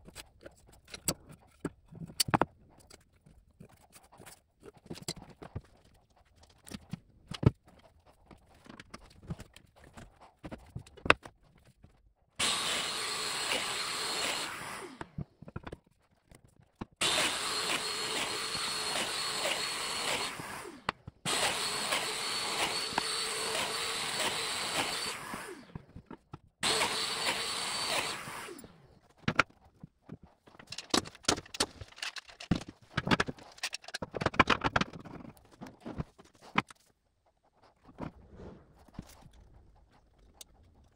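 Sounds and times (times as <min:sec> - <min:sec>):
clicks and knocks of handling: 0:00.0 - 0:12.0, 0:15.0 - 0:17.0, 0:29.0 - 0:37.0
power joiner running: 0:12.4 - 0:15.2, 0:17.0 - 0:26.0, 0:26.6 - 0:28.9.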